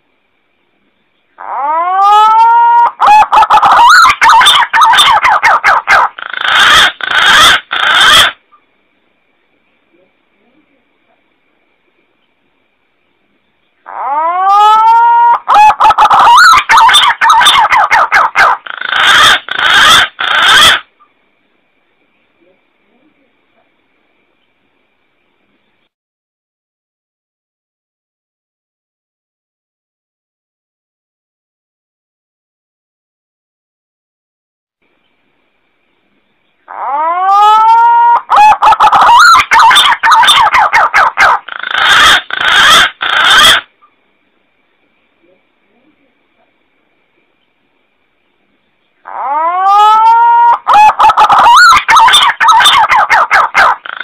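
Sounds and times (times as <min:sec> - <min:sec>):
pigeon calls: 0:01.4 - 0:08.4, 0:13.9 - 0:20.9, 0:36.7 - 0:43.7, 0:49.0 - 0:54.0
pigeon call whistles: 0:49.2 - 0:54.0.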